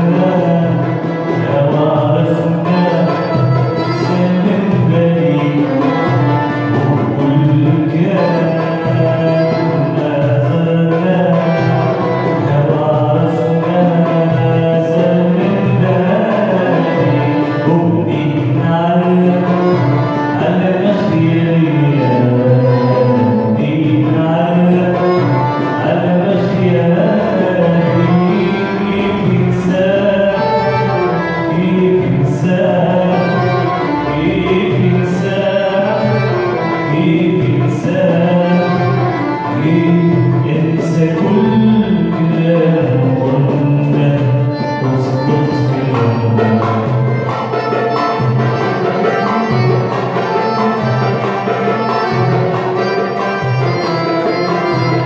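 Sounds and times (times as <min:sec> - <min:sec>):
man singing: 0:00.0 - 0:55.0
small ensemble playing: 0:00.0 - 0:55.0.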